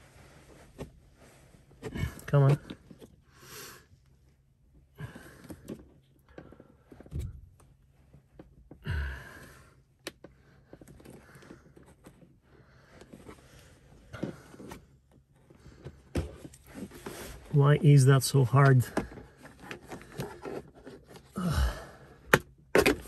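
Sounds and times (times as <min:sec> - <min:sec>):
person sighing: 0:08.8 - 0:09.6, 0:21.4 - 0:22.2.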